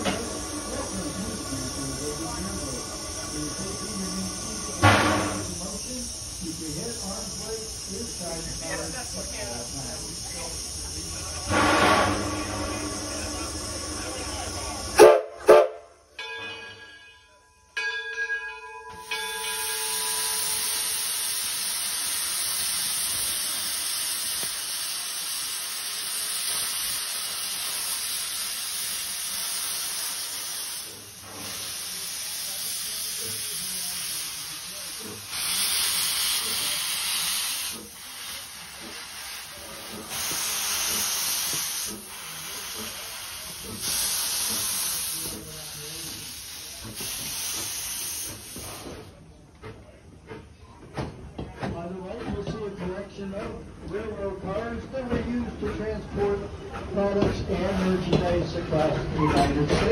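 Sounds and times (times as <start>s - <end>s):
steam hissing: 0.0s - 15.8s, 18.8s - 49.7s
steam whistle toot: 15.0s - 16.0s.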